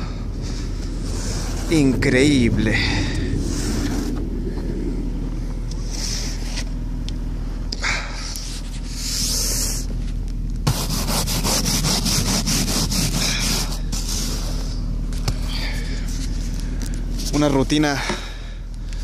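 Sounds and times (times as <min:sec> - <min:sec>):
steady low hum: 0:00.0 - 0:19.0
brush sweeping snow off windshield: 0:10.7 - 0:14.8.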